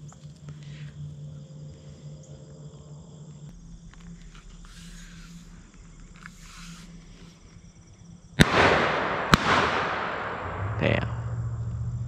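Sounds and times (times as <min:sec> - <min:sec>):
insects singing: 0:00.0 - 0:12.0
low hum: 0:00.0 - 0:12.0
rustling: 0:03.8 - 0:07.7.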